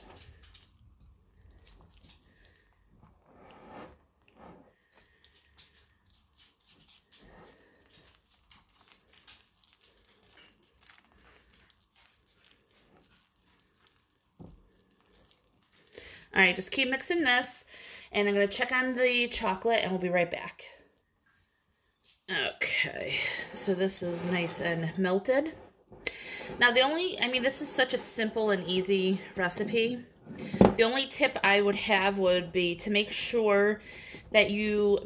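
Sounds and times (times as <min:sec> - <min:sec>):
whisk scraping glass bowl: 0:03.2 - 0:04.7, 0:23.3 - 0:25.7.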